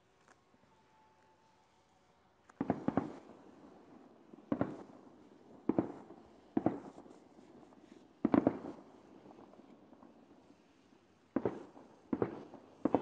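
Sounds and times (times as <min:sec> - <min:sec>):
fireworks bangs: 0:02.6 - 0:13.0.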